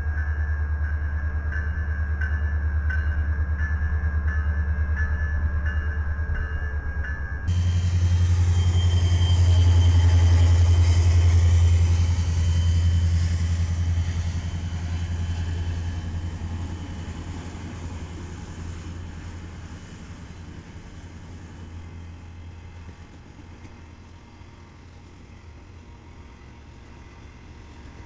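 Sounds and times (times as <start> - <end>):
locomotive engine drone: 0.0 - 28.0
thin high whine: 7.4 - 13.6.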